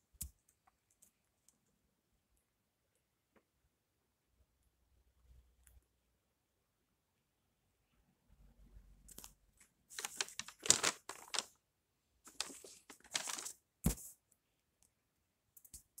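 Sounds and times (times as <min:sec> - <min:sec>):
paper rustling and crinkling: 0:09.9 - 0:11.6, 0:12.3 - 0:14.1.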